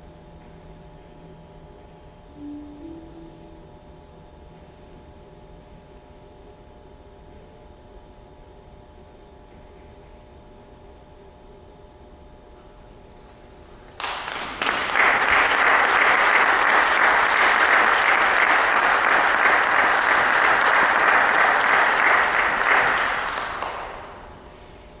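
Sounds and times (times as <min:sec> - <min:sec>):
audience applauding: 0:14.0 - 0:24.4.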